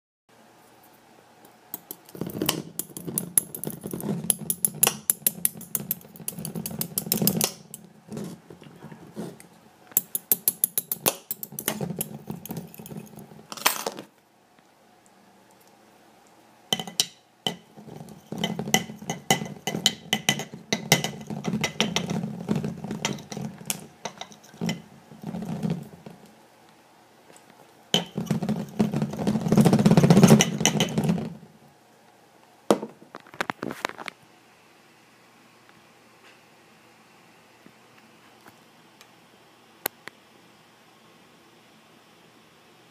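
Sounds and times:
glass clattering on hard surface: 1.8 - 7.8, 10.0 - 14.0, 16.7 - 26.1, 28.0 - 31.3.

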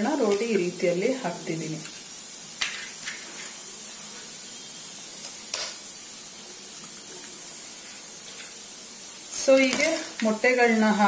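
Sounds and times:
curry sizzling in a pan: 0.0 - 11.0.

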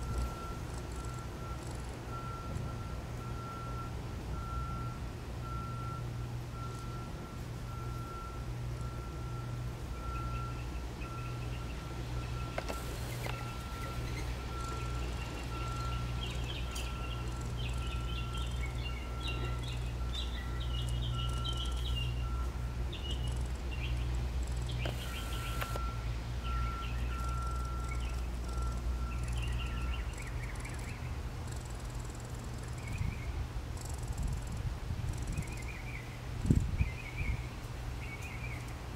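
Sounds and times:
steady low hum: 0.0 - 38.9
squirrel chattering: 13.1 - 22.2, 23.0 - 25.6, 27.0 - 33.0.

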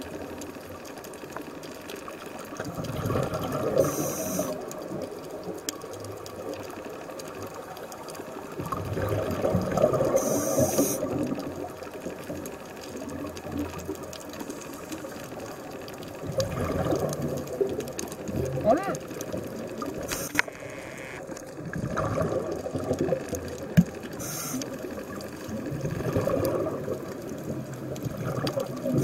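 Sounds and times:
watery background: 0.0 - 29.0
underwater exhalation bubbling: 2.6 - 4.7, 8.6 - 11.7, 16.2 - 29.0
regulator high hiss: 3.8 - 4.6, 10.2 - 11.1, 24.2 - 24.7.

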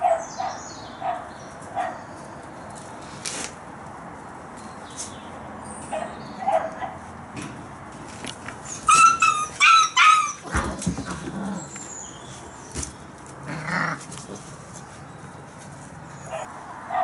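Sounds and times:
puppies scuffling: 7.9 - 16.5
puppy yelping: 8.6 - 10.8.

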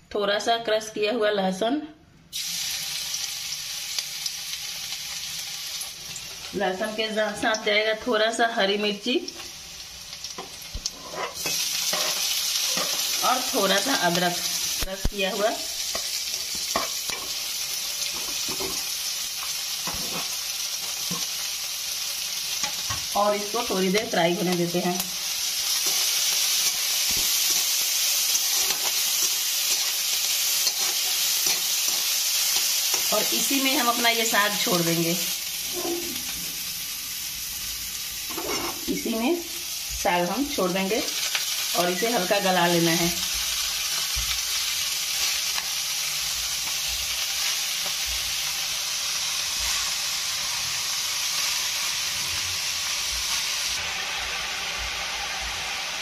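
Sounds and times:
food sizzling in hot oil: 2.3 - 56.0
metal spatula scraping: 10.4 - 13.3, 19.8 - 21.3, 25.7 - 33.2, 38.3 - 39.0.

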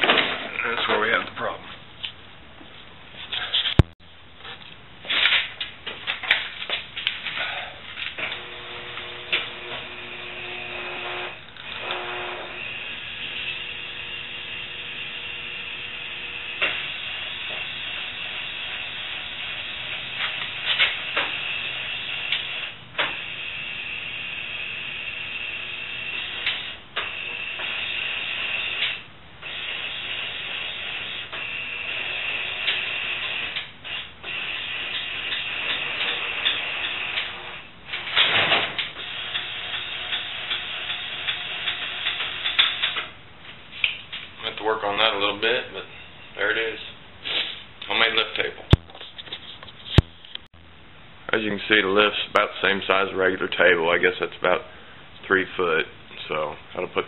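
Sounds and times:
motor whirring hum: 8.2 - 28.8.

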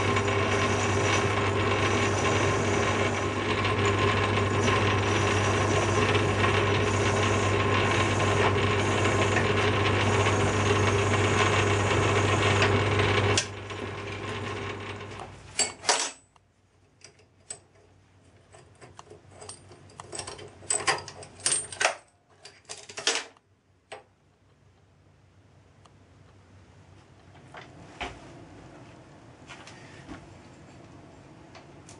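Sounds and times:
lathe spinning down: 0.0 - 15.2
metal lathe running: 0.0 - 15.2
metallic clicks and clatters: 18.5 - 23.4.

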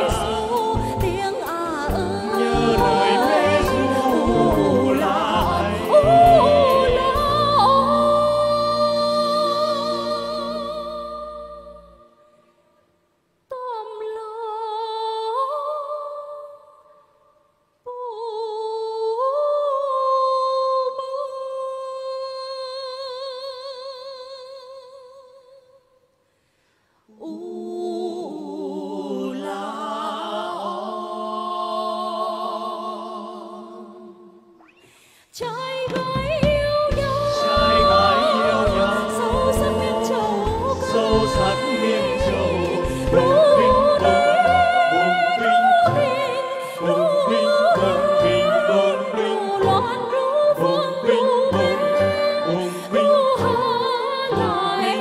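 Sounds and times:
woman singing unaccompanied: 0.0 - 12.0, 35.4 - 55.0
group of voices singing in harmony: 0.0 - 12.5, 27.1 - 55.0
band with drums and bass: 35.9 - 39.8.

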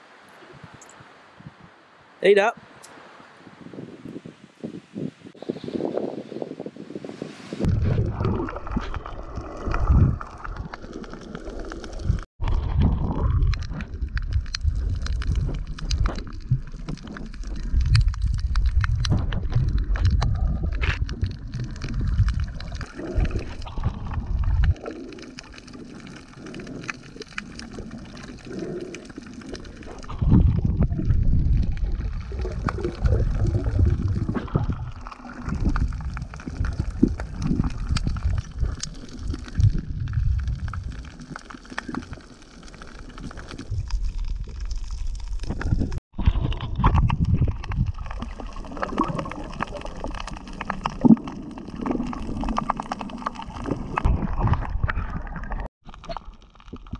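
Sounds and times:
water sloshing and gurgling: 7.2 - 56.9.

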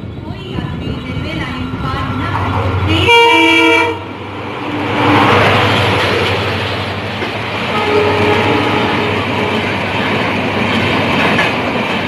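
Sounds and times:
train wheels rushing on rails: 0.0 - 12.0
locomotive horn blast: 2.9 - 4.1, 7.7 - 9.6.

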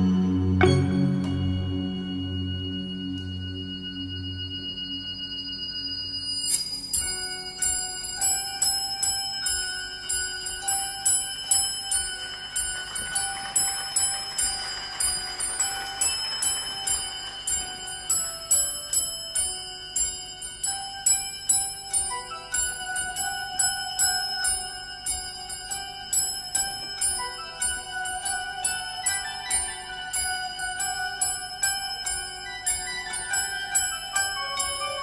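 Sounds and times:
held low tone: 0.0 - 6.0
bell-like tuned percussion: 0.0 - 35.0.

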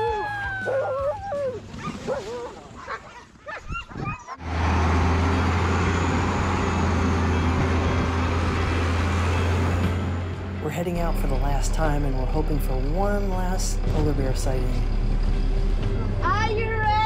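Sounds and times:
dogs yipping and howling: 0.0 - 4.5
vehicle engine droning: 4.4 - 17.0.

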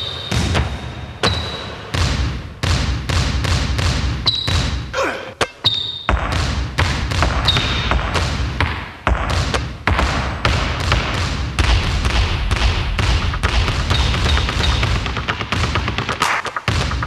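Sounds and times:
sneaker squeaks: 0.0 - 2.0, 4.2 - 6.2, 7.3 - 8.0, 13.8 - 15.2
basketballs dribbling on hard floor: 0.0 - 4.9, 5.6 - 17.0.

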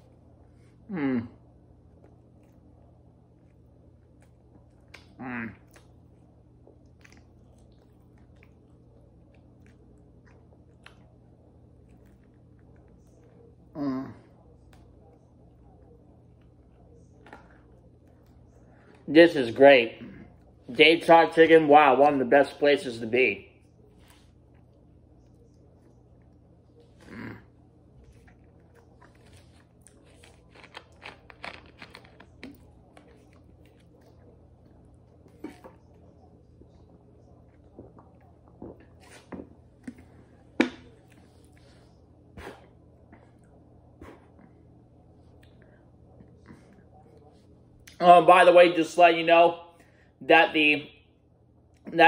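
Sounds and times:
chewing with soft mouth clicks: 1.6 - 13.7, 14.3 - 19.0, 23.6 - 48.0.

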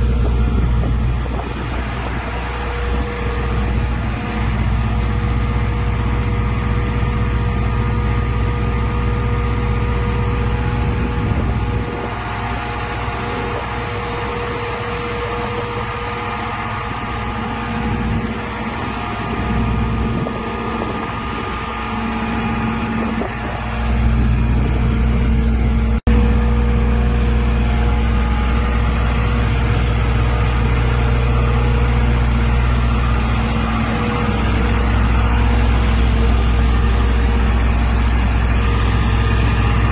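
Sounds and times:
diesel engine running: 0.0 - 39.9
steady tone: 0.0 - 39.9.

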